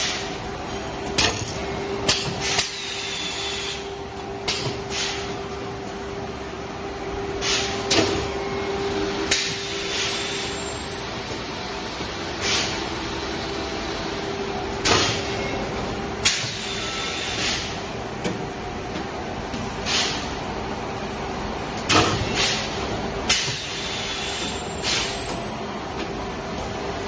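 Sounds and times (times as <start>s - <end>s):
machine humming: 0.3s - 19.7s
pneumatic hisses: 4.9s - 5.3s, 7.4s - 7.8s, 9.6s - 10.5s, 12.4s - 12.8s, 16.4s - 17.8s, 19.8s - 20.3s, 23.4s - 25.2s.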